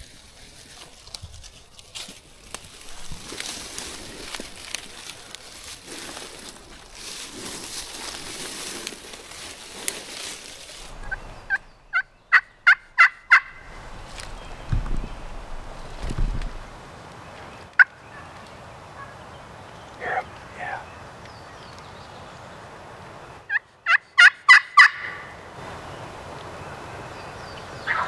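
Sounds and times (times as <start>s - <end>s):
turkey yelps: 11.0s - 13.7s, 23.5s - 25.3s.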